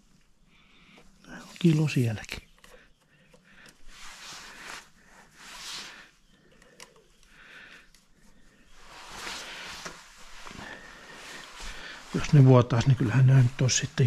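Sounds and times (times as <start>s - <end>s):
click: 6.5s - 7.3s.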